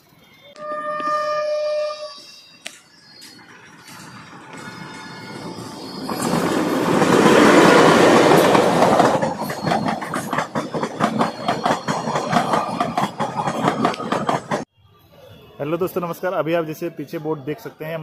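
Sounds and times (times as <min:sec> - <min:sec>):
train passing: 0:00.0 - 0:14.7
wheels clacking over rail joints: 0:03.3 - 0:14.7.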